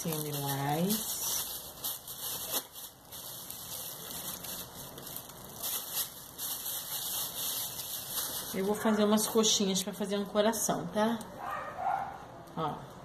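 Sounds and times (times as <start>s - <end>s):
plastic bag rustling and crinkling: 0.0s - 9.8s.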